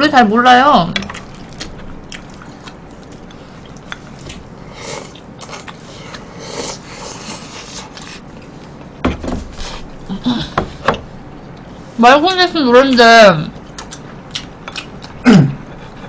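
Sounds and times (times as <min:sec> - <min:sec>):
slurping and chewing: 0:01.0 - 0:08.6, 0:13.6 - 0:16.0.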